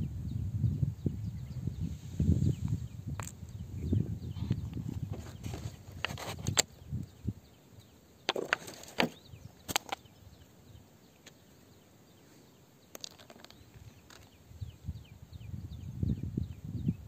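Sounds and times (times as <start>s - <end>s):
crystals clicking and scraping: 12.9s - 14.4s.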